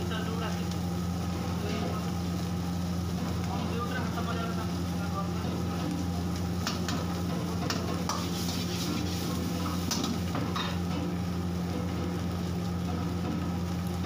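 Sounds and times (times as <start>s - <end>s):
food sizzling in a pan: 0.0s - 14.0s
metal ladle scraping in a wok: 6.7s - 10.8s.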